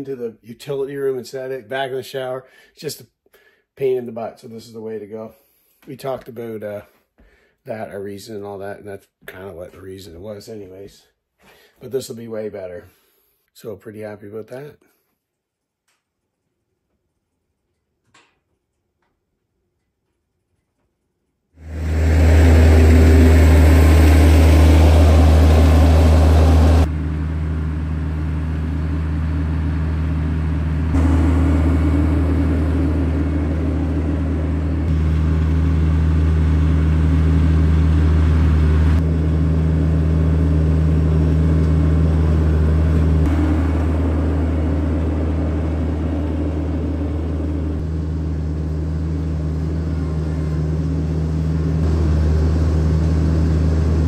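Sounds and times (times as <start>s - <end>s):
tractor engine droning: 21.6s - 54.0s.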